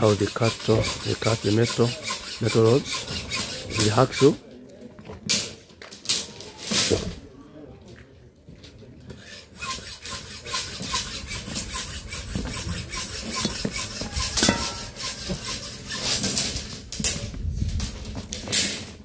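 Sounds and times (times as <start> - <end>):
hacksaw cutting metal rod: 0.0 - 4.4, 9.2 - 16.8.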